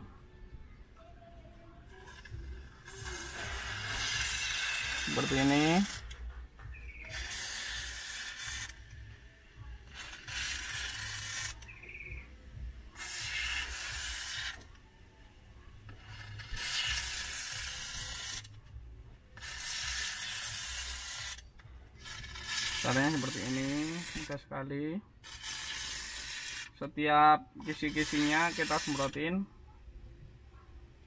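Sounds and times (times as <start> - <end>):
aerosol can spraying: 1.9 - 12.3, 12.9 - 14.7, 15.9 - 18.5, 19.4 - 24.4, 25.2 - 26.8, 27.6 - 29.2.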